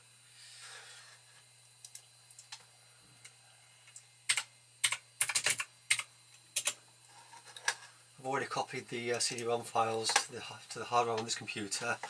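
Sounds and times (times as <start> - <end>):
computer keyboard typing: 4.3 - 6.8.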